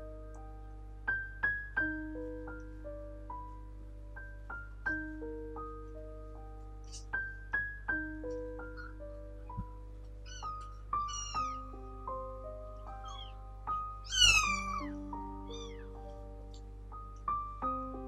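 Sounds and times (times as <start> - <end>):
gentle piano music: 0.0 - 18.0
kitten mewing: 10.3 - 11.6, 13.0 - 13.4, 14.1 - 16.0.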